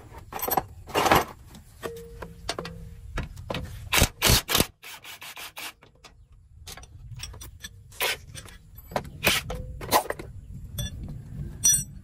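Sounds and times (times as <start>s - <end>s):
metallic clink with ringing: 11.6s - 12.0s.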